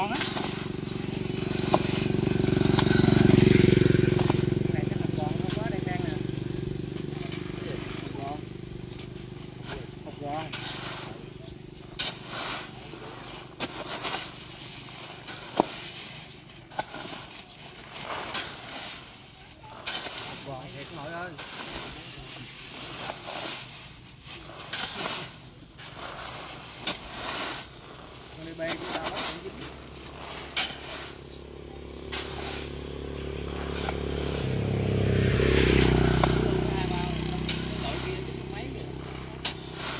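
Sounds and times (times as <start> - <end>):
vehicle engine hum: 0.0 - 10.4, 29.6 - 39.9
shovel scraping through fertilizer: 0.0 - 39.9.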